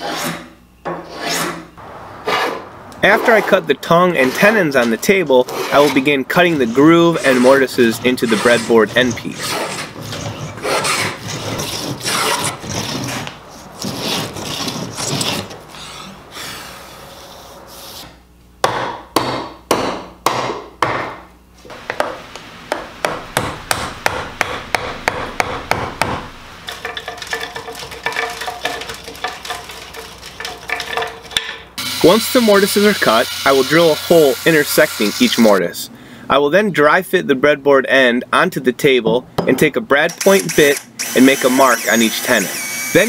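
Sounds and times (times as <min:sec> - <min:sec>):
hand plane rasping strokes: 0:00.0 - 0:00.4, 0:01.1 - 0:01.6, 0:04.2 - 0:18.1
mallet striking chisel: 0:21.9 - 0:26.3.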